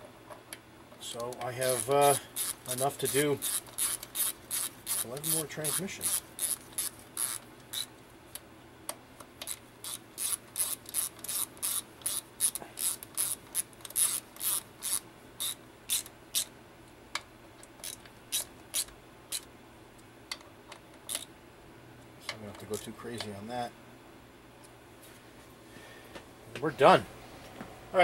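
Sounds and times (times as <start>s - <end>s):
socket ratchet clicking: 1.7s - 7.9s, 9.4s - 16.5s, 21.1s - 21.3s.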